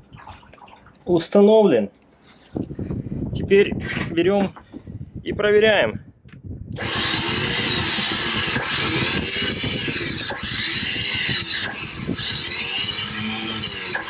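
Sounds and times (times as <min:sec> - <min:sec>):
electric windlass motor whirring: 0:06.8 - 0:14.0.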